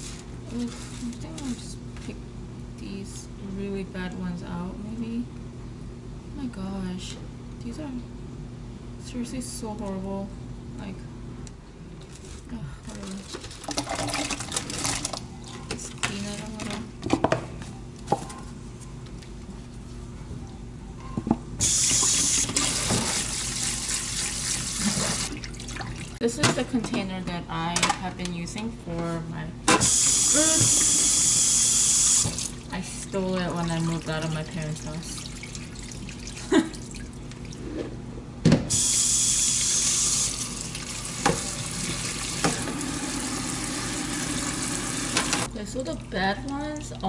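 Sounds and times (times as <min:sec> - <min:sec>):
water running into a colander: 0:12.9 - 0:15.2, 0:21.6 - 0:26.2, 0:29.8 - 0:37.6, 0:38.7 - 0:47.0.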